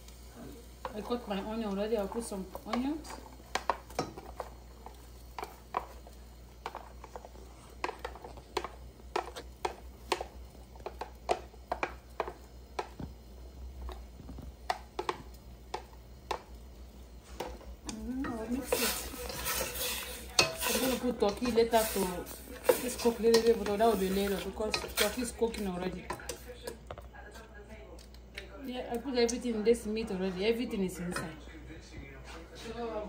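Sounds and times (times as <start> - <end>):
spatula stirring in pot: 0.1 - 26.8
woman speaking: 0.9 - 3.2, 17.9 - 19.2, 20.4 - 26.2, 28.7 - 31.4
plastic spatula tapping and scraping: 2.5 - 13.2, 13.8 - 16.5.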